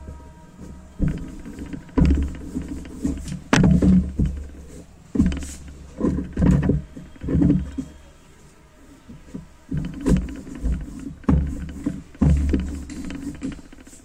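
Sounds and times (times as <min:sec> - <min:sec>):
rolling pin scraping on dough: 0:00.0 - 0:08.1, 0:09.1 - 0:14.0.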